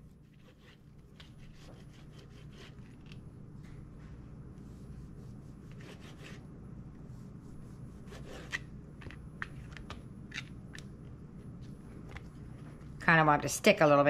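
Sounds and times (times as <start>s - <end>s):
low steady hum: 0.0s - 14.0s
knife scraping through dough: 0.2s - 3.2s, 5.0s - 6.4s, 7.5s - 8.7s.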